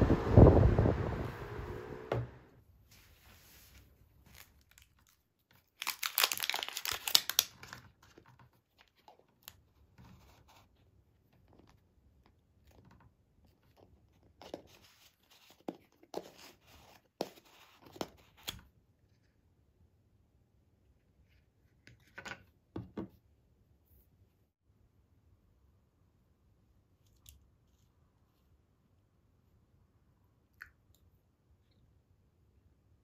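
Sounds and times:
plastic seal strip tearing: 5.8s - 7.8s.

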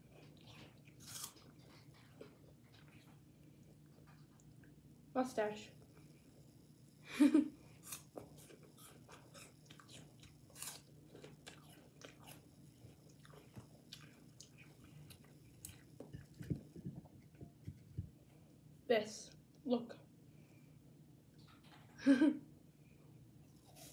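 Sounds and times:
person chewing crisp apple: 0.0s - 4.5s, 7.6s - 17.4s, 23.6s - 23.9s.

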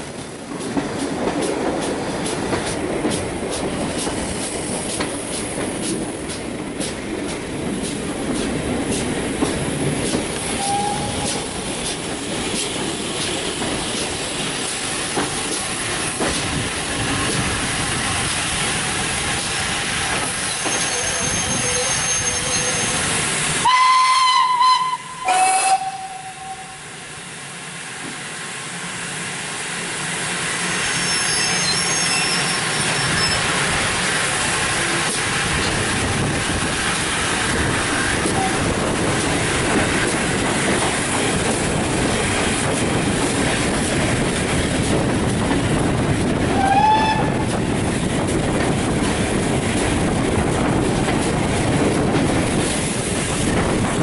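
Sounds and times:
steam locomotive whistle: 10.6s - 11.4s, 23.6s - 26.8s, 38.3s - 38.6s, 46.5s - 47.4s.

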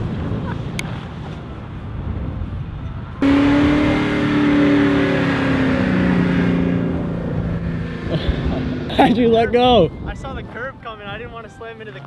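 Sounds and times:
truck engine under load: 3.2s - 9.0s.

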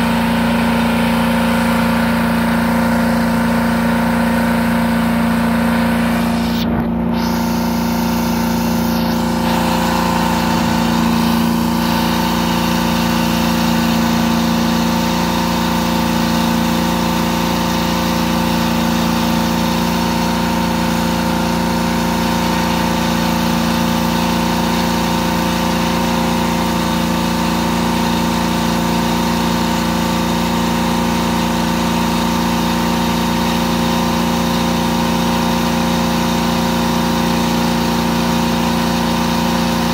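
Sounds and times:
cleaning machine engine hum: 0.0s - 39.9s.

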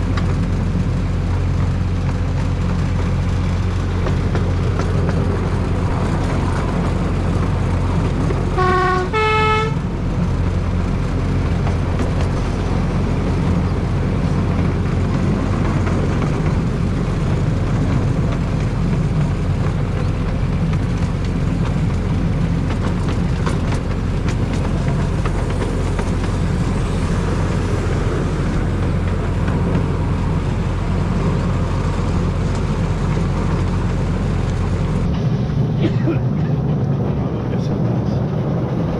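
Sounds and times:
locomotive engine running: 0.0s - 38.9s
locomotive horn toots: 8.5s - 10.0s.

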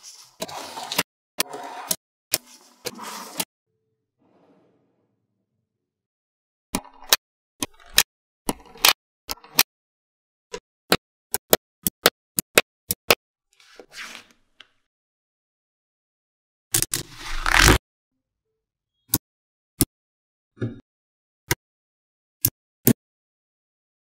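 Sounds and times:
soft scrape: 4.2s - 5.2s.

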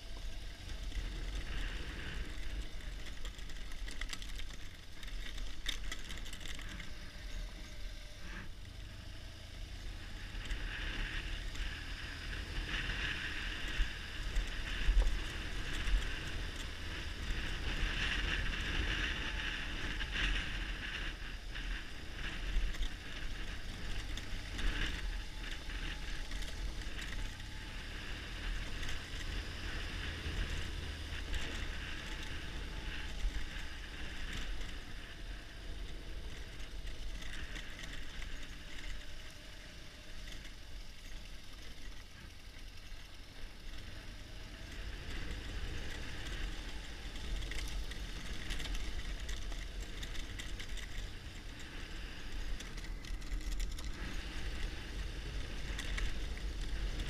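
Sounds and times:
motorcycle engine rumble: 0.0s - 57.0s
wind noise on microphone: 10.2s - 39.1s.

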